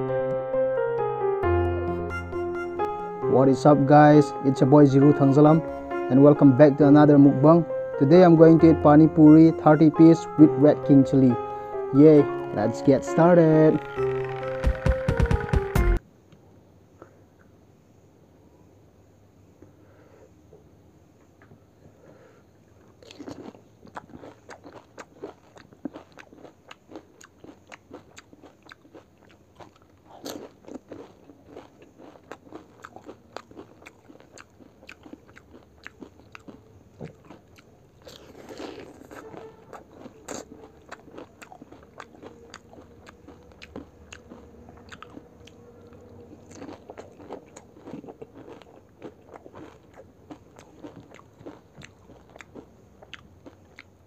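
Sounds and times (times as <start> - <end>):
crunchy shells being bitten: 22.8 - 53.9
chewing: 22.8 - 54.0.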